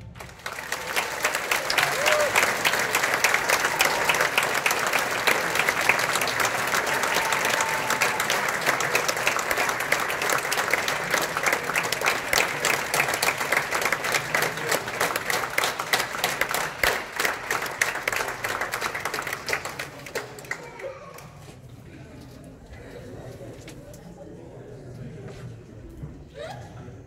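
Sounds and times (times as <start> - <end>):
audience applauding: 0.0 - 21.3.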